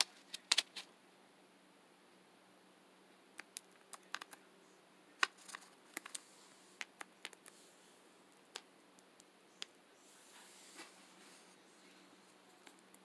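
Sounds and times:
cockatiel clicking: 3.4 - 4.4.

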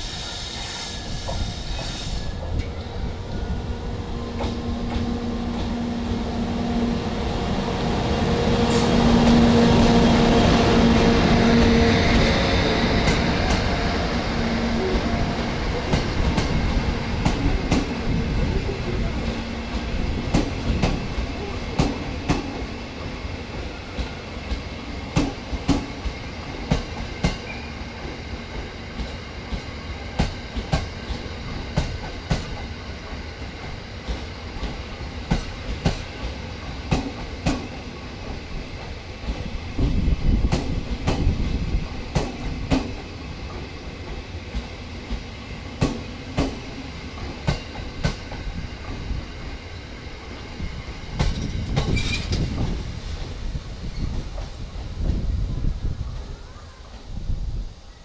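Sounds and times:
train wheels clicking over rail joints: 20.2 - 22.7, 23.5 - 49.6, 50.2 - 55.4.

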